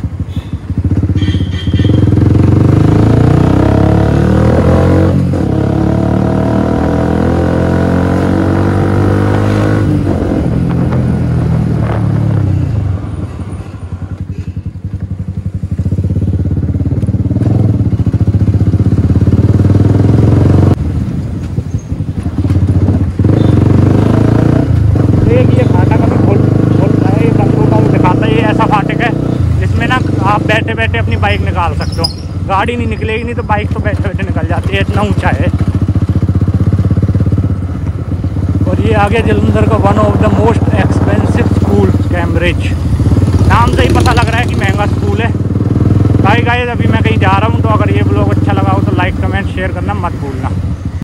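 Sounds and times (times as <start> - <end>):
motorcycle engine running: 0.0 - 51.0.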